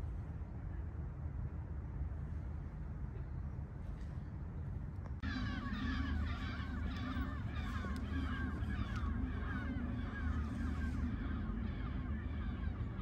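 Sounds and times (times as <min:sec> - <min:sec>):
low background rumble: 0:00.0 - 0:13.0
birds chattering: 0:05.2 - 0:13.0.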